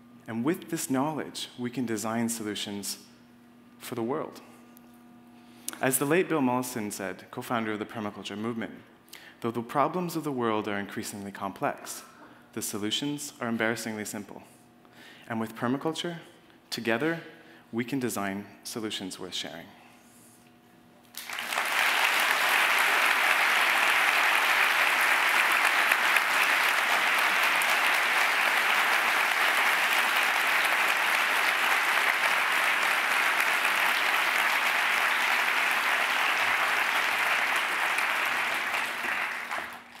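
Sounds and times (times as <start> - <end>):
audience applauding: 21.2 - 40.0.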